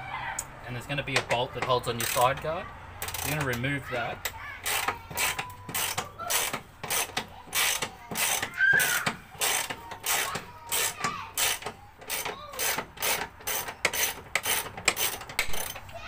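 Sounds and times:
socket ratchet clicking: 3.0s - 3.7s, 4.6s - 16.0s.

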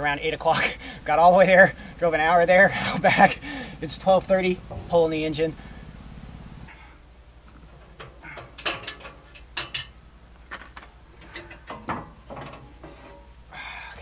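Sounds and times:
metal clanks and scrapes: 4.6s - 13.4s.

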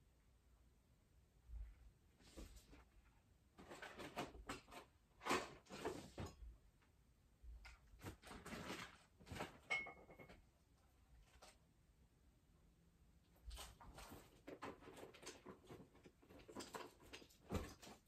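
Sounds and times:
rustling and shuffling: 1.5s - 6.6s, 7.7s - 11.8s, 13.3s - 18.0s.

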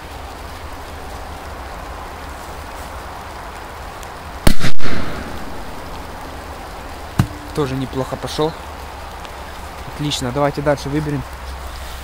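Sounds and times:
firecracker bang under metal can: 7.2s - 7.4s.

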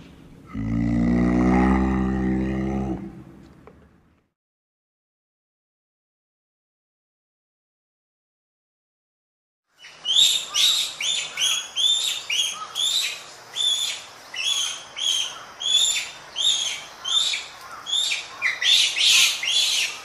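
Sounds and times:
monkey high-pitched calls: 9.8s - 20.0s.

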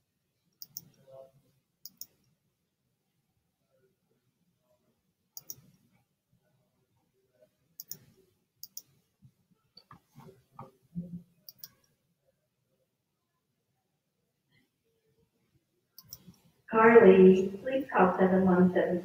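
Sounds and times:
computer mouse clicks: 0.6s - 1.0s, 1.8s - 2.3s, 5.4s - 5.8s, 7.8s - 9.0s, 11.4s - 12.0s, 16.0s - 16.5s.

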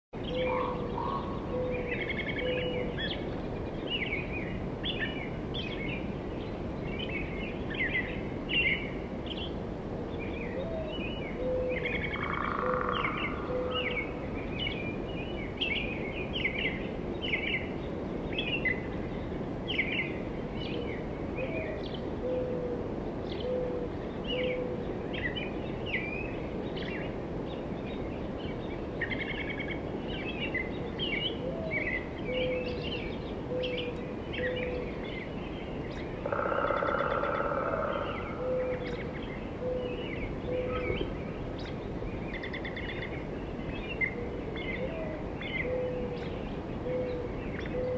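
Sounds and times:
small birds chirping and trilling: 23.2s - 47.9s
loud dense bird call: 36.2s - 41.1s.

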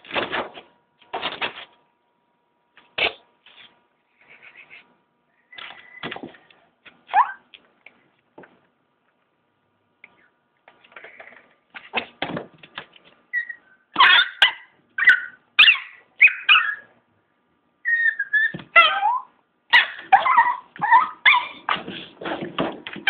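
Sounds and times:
small dog high-pitched cries: 7.1s - 7.5s, 13.3s - 16.9s, 17.8s - 21.7s.

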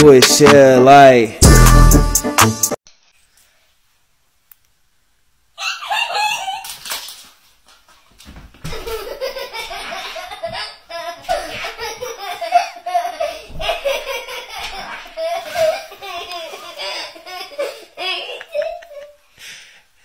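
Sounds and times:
people laughing: 8.8s - 19.2s.

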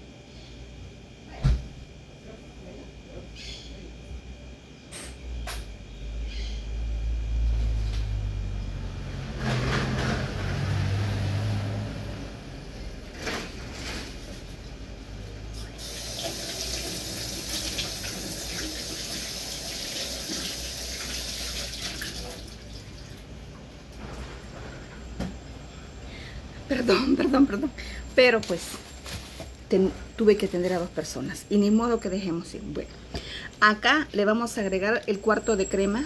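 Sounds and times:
water running from a tap: 15.8s - 23.3s.

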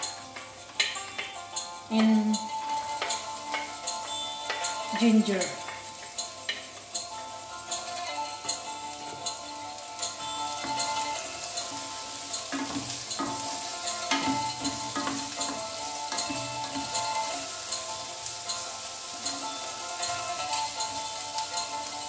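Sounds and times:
garlic sizzling in oil: 0.0s - 22.0s
wooden spatula scraping pan: 10.4s - 22.0s.

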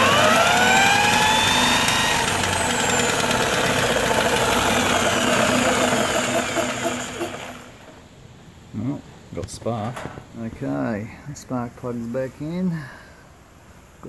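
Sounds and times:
power tool whine spinning engine: 0.0s - 8.0s.

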